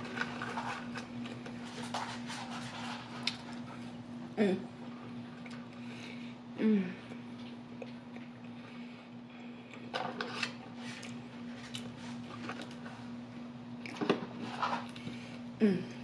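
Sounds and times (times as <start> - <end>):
chewing: 3.0 - 3.8, 7.1 - 8.7, 9.4 - 12.9
person humming mm: 6.6 - 7.1, 15.6 - 16.0.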